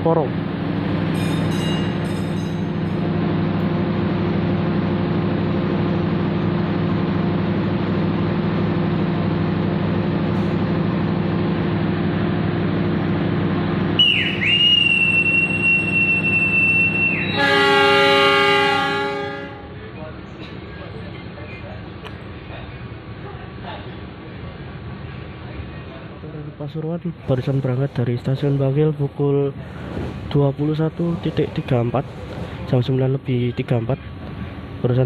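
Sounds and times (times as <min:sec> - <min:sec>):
diesel engine drone: 0:00.0 - 0:35.0
long high whistle blast: 0:14.0 - 0:19.4
train horn blast: 0:14.0 - 0:19.8.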